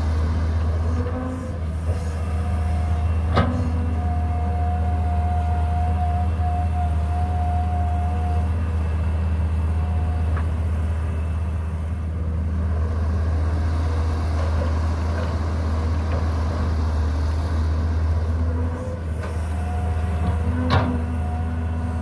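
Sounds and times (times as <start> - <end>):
excavator diesel engine drone: 0.0 - 22.0.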